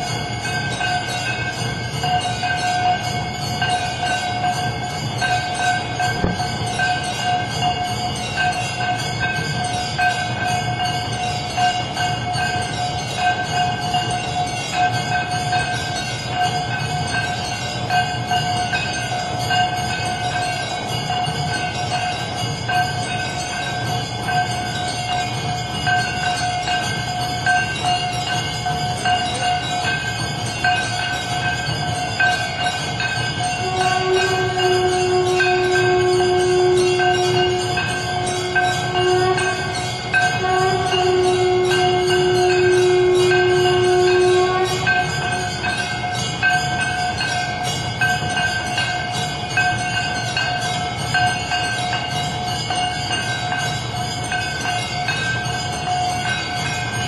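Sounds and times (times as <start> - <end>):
bells ringing rapidly: 0.0 - 57.0
long blown horn note: 33.6 - 45.6.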